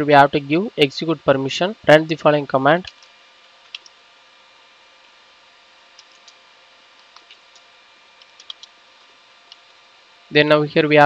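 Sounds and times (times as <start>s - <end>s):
faint hum: 0.0s - 11.0s
computer keyboard keystrokes: 3.7s - 4.0s, 6.0s - 6.4s, 7.0s - 8.8s.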